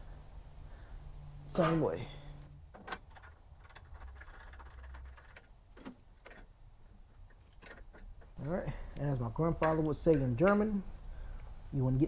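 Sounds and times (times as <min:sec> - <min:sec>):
metal clicks and rattles: 0:02.7 - 0:06.6, 0:07.2 - 0:08.6.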